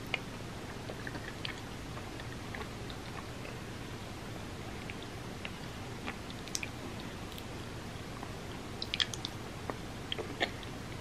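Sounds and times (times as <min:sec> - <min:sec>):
steady background hiss: 0:00.0 - 0:11.0
wet chewing mouth clicks: 0:08.8 - 0:09.4.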